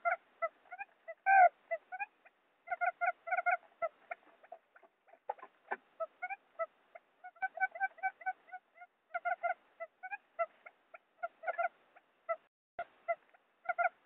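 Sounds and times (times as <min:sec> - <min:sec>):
quail lure call notes: 0:00.0 - 0:11.7.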